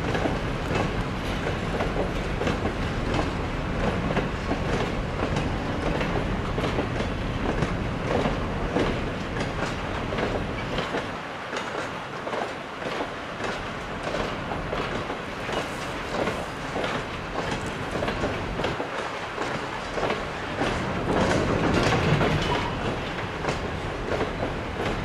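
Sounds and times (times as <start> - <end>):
train rumble: 0.0 - 25.0
train wheels clattering over rail joints: 0.0 - 25.0.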